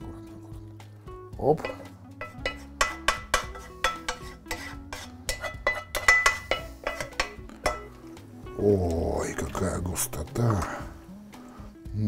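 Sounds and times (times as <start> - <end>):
wooden spoon knocking on frying pan: 1.6 - 4.7, 5.3 - 8.0.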